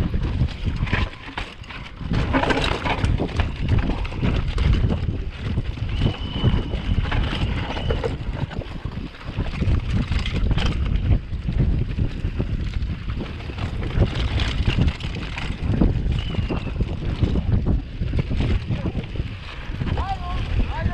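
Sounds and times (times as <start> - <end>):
mountain bike rattling over trail: 0.0 - 20.9
wind buffeting microphone: 0.0 - 20.9.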